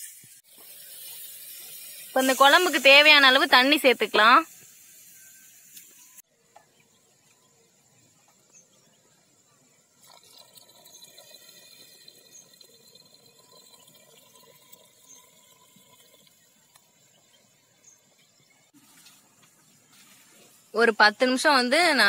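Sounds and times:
water pouring into a pot: 0.0s - 5.7s, 9.9s - 17.3s.

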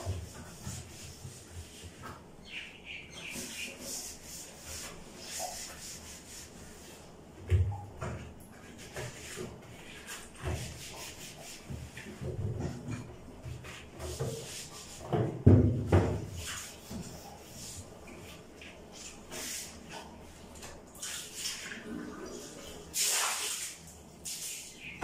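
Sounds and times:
cloth rubbing a counter: 3.4s - 7.1s, 8.6s - 20.0s.

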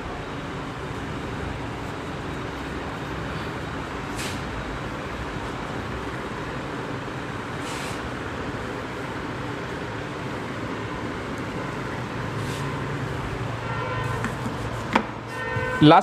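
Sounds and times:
road traffic rumble: 0.0s - 16.0s
short high hisses: 4.1s - 4.5s, 7.6s - 8.0s.

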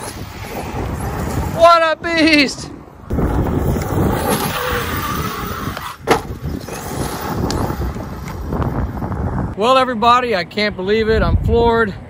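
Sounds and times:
rc truck running over gravel: 3.2s - 8.7s
sharp thud of landing: 5.8s - 6.5s.

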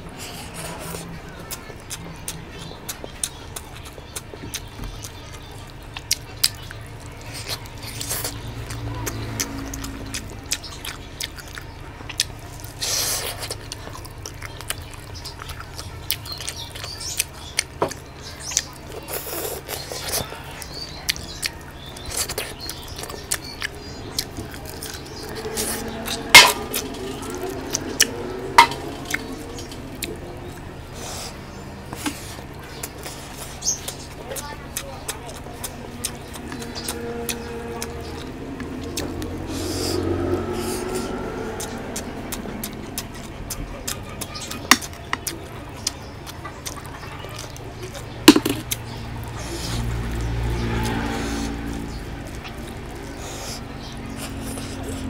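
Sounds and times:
wet eating sounds: 0.0s - 55.0s
low rumble: 22.8s - 46.1s
sharp smacking clicks: 44.3s - 50.3s.

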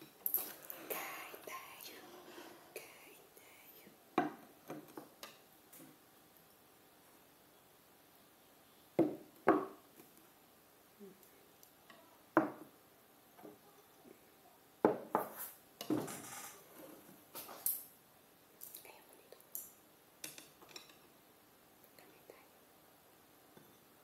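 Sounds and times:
ceramic bowls knocking on wooden table: 4.2s - 4.8s, 9.0s - 9.8s, 12.4s - 12.7s, 14.8s - 15.3s.

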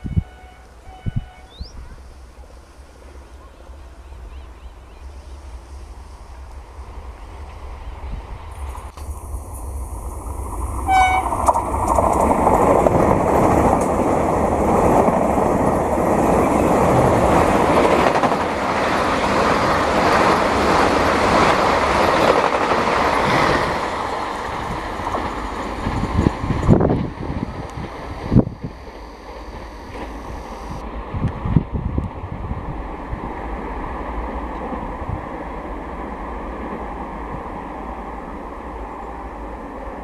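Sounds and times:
train horn toot: 0.0s - 1.8s, 10.8s - 11.4s
train wheels rushing on rail: 0.0s - 40.0s.

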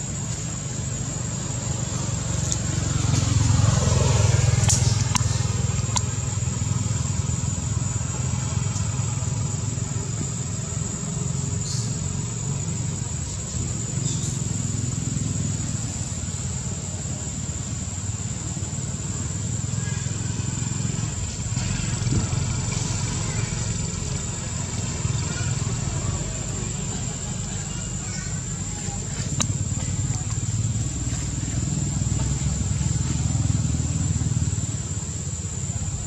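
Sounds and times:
vehicle engine rumbling: 0.0s - 36.0s
vehicle passing: 0.6s - 13.0s, 14.3s - 36.0s
faint clicks: 4.6s - 6.1s.

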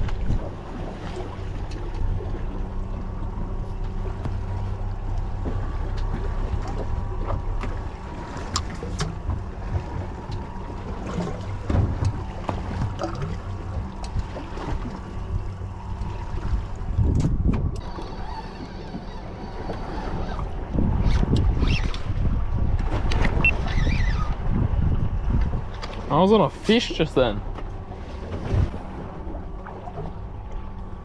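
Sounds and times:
boat engine idling: 0.0s - 31.0s
water noise: 0.0s - 31.0s
wind on microphone: 8.7s - 18.5s, 19.5s - 25.9s.

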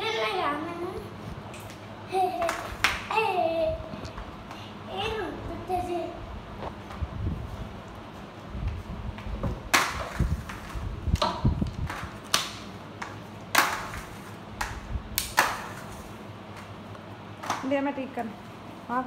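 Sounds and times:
flip-flops slapping tiles: 8.6s - 16.8s.

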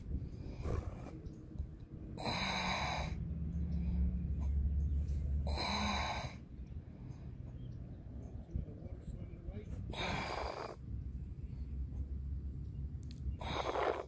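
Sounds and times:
low steady hum: 0.0s - 13.5s
person breathing: 5.2s - 7.4s.

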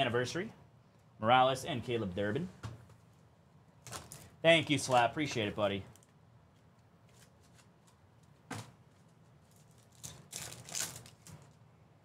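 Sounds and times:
plastic wrapper crinkling: 3.8s - 5.0s, 8.9s - 11.6s.

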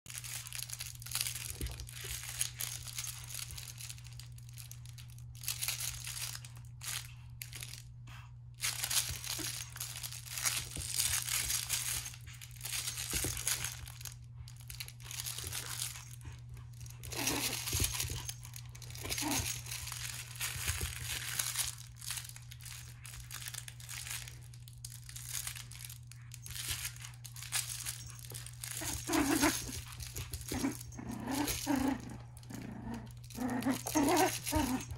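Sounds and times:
fabric toy rustling and crackling: 0.0s - 7.9s, 8.6s - 34.9s
puppy growling: 14.7s - 21.8s, 27.4s - 34.9s.

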